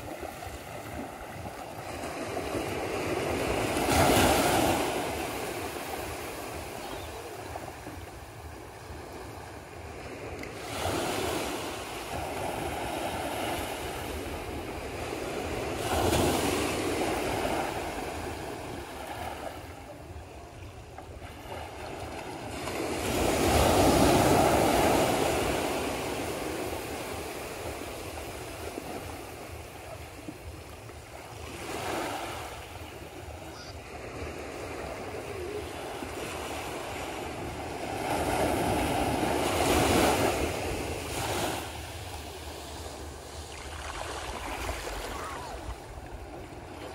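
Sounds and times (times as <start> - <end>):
surf breaking on shore: 31.5 - 46.9.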